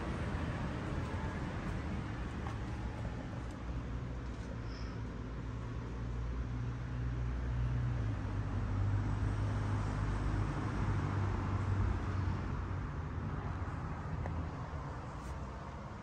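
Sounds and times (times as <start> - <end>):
low vehicle rumble: 0.0 - 5.8.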